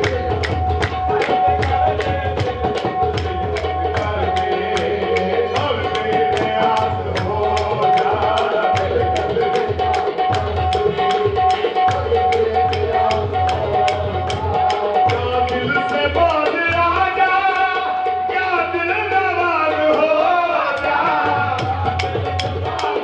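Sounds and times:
hand drums beating: 0.0 - 23.0.

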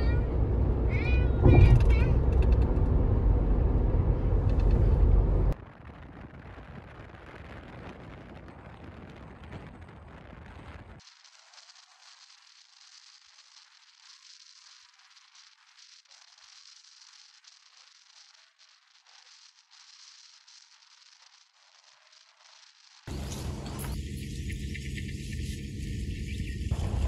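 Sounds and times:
tyre and wind rumble: 0.0 - 11.0, 23.1 - 27.0
faint hiss: 6.2 - 27.0.

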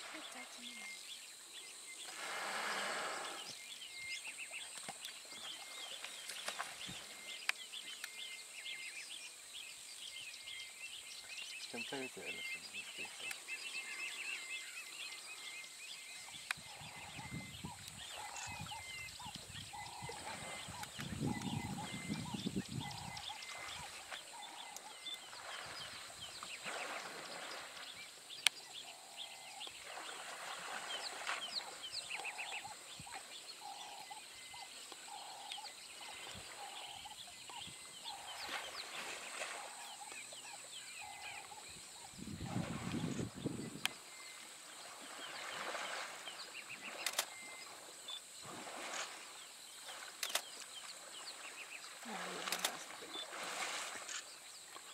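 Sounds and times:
birds calling and chirping: 0.0 - 54.9
elephants splashing in water: 2.0 - 3.5, 18.1 - 28.2, 28.8 - 35.3, 38.1 - 41.4, 44.1 - 54.9.

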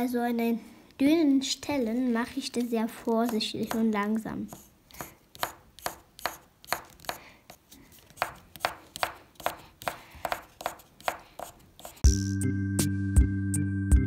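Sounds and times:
pencil scratching on paper: 3.2 - 12.0
music: 12.0 - 14.0.

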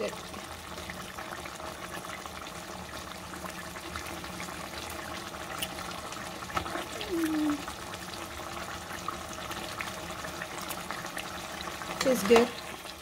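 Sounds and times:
stew bubbling in a pot: 0.0 - 13.0.

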